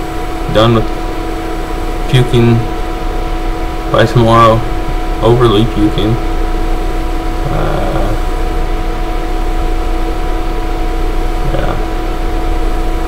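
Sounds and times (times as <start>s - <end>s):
background hum with hiss: 0.0s - 13.0s
man's low vocal sounds: 7.4s - 8.5s, 11.4s - 12.2s.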